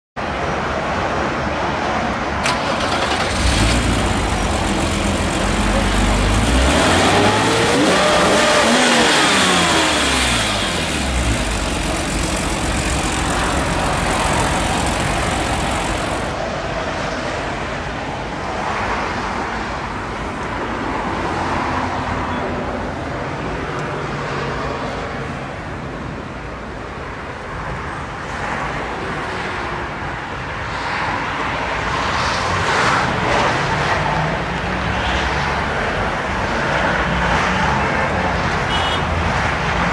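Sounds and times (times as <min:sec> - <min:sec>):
car engine idling: 0:02.4 - 0:16.4
car engine revving: 0:02.4 - 0:16.4.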